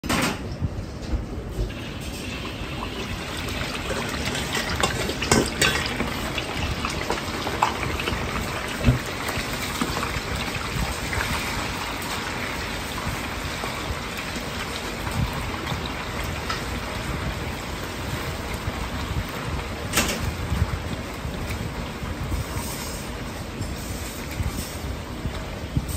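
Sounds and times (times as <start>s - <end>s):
meat sizzling in hot oil: 1.7s - 24.8s
metal ladle knocking wok: 4.1s - 6.4s.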